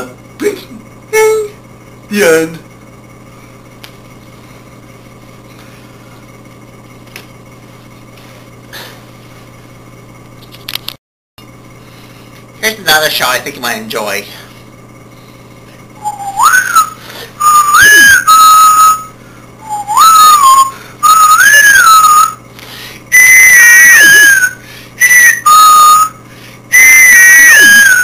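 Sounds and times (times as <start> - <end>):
person whistling a tune: 16.0 - 22.4, 23.1 - 28.0.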